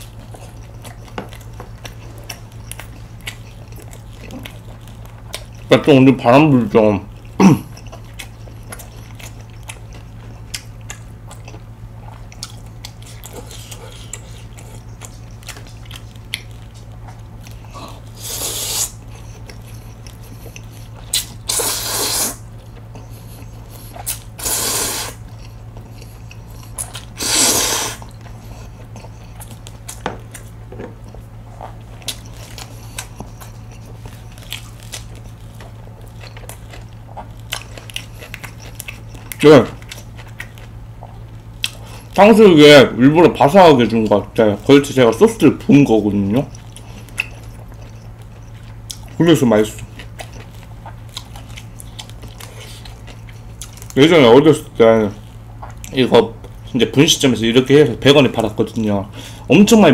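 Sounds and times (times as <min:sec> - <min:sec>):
quiet chewing: 0:00.0 - 0:42.2, 0:43.8 - 0:56.8
steady low hum: 0:00.0 - 0:59.9
noodles slurped from a bowl: 0:24.4 - 0:25.2, 0:27.2 - 0:28.0.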